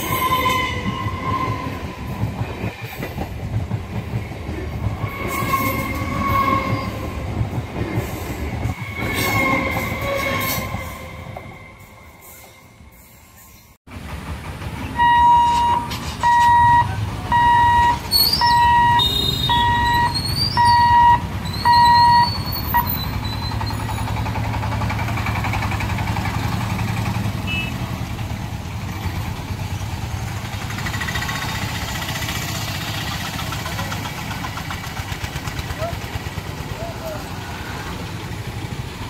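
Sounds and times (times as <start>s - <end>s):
vehicle engines running: 13.9s - 39.0s
level crossing beeper: 14.9s - 22.9s.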